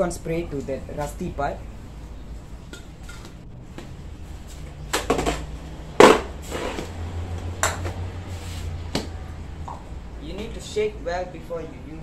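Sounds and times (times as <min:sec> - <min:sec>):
spray cans knocking and clattering: 0:05.0 - 0:06.9.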